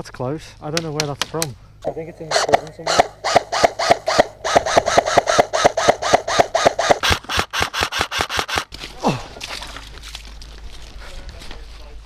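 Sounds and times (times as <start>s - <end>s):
airsoft rifle shots: 0.8s - 8.8s.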